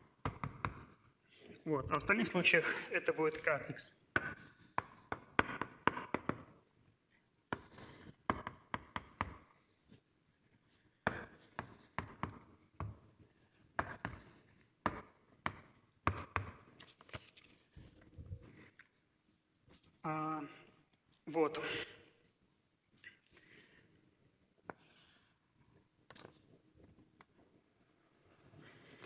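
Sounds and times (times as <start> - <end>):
writing taps and scratches on board: 0.0 - 1.1, 4.1 - 6.7, 7.5 - 10.0, 10.6 - 18.0, 26.0 - 27.0.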